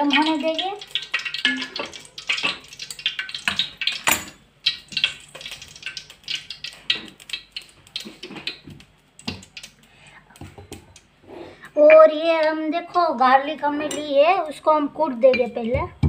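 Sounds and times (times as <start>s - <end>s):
oil crackling and popping: 0.0s - 11.2s.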